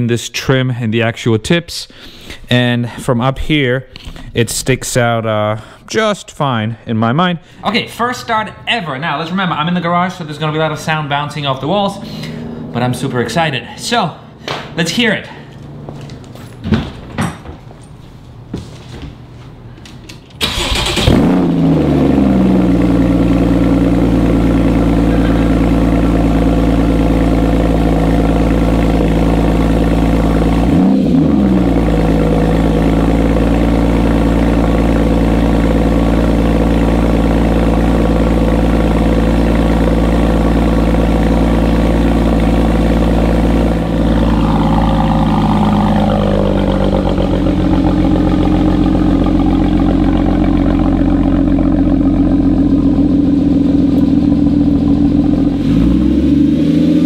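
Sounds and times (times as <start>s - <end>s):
car engine starting and idling: 7.7s - 16.4s, 20.3s - 57.0s
engine rev blip: 43.2s - 57.0s.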